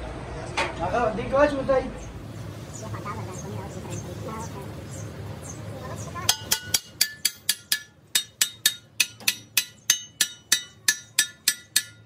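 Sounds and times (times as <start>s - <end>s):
hammer striking steel tube: 6.3s - 12.0s.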